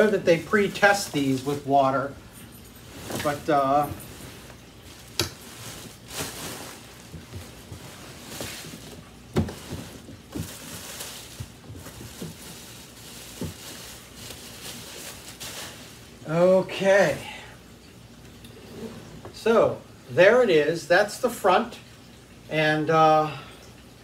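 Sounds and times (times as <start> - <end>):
plastic bag rustling and crinkling: 0.0 - 16.4.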